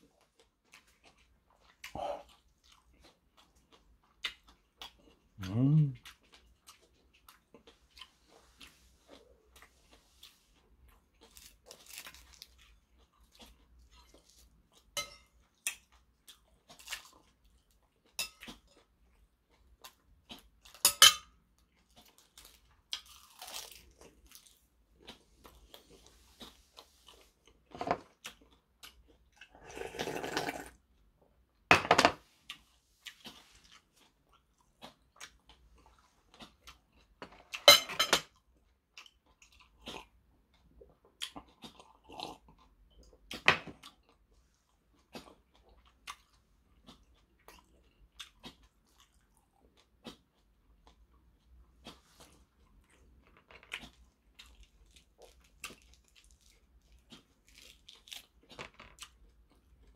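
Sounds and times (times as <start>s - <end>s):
chewing and crunching food: 0.0s - 59.9s
spoon clinking on ceramic bowl: 15.0s - 15.3s.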